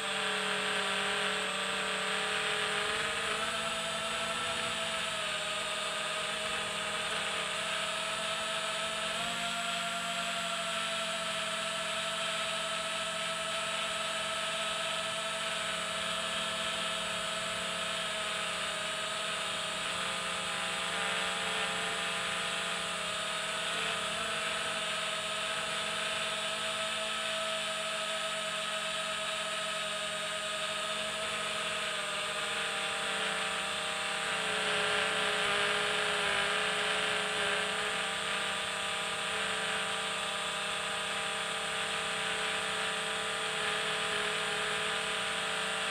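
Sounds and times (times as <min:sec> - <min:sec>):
electric motors and propellers whining: 0:00.0 - 0:45.9.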